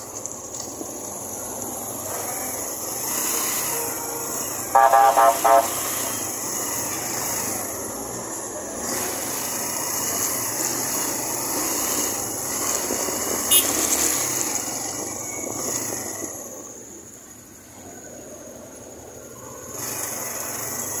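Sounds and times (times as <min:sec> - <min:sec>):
rush of riding noise: 0:00.0 - 0:21.0
motorcycle engine running: 0:08.8 - 0:16.1.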